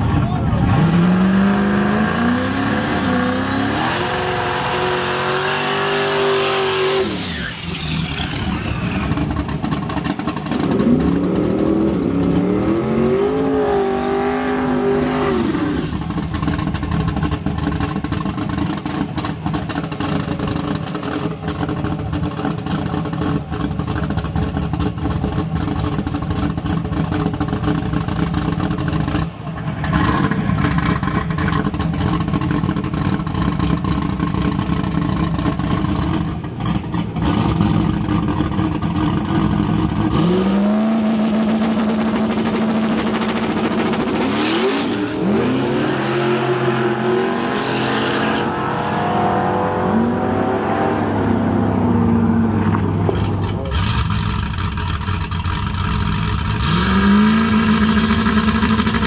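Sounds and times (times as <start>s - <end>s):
drag car accelerating hard: 0.0s - 59.0s
car engine idling: 8.0s - 12.6s, 15.9s - 40.1s, 51.7s - 56.6s.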